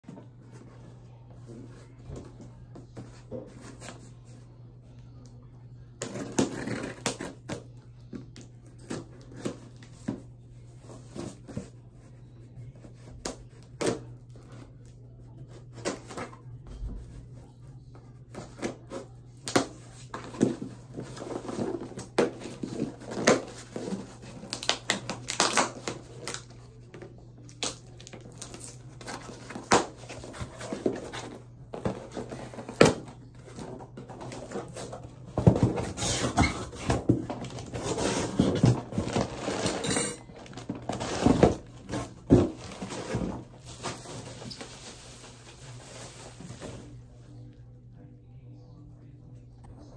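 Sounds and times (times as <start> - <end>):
cardboard rustling and ripping: 27.6 - 39.8, 40.4 - 46.9.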